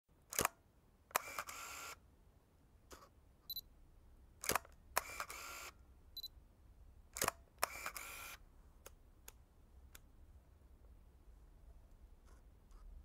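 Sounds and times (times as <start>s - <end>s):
camera shutter clicking: 0.3s - 2.0s, 4.4s - 5.8s, 7.2s - 8.4s
camera motor whir: 1.2s - 2.0s, 4.4s - 5.8s, 7.2s - 8.4s.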